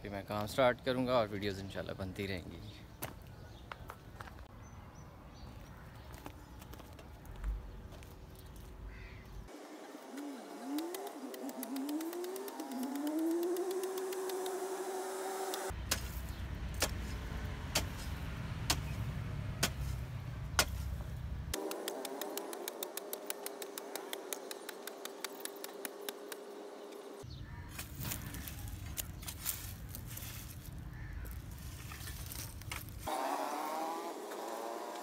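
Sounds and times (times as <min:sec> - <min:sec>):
hoe scraping strikes: 0:09.5 - 0:27.2
hoe chopping dry soil: 0:10.0 - 0:29.5.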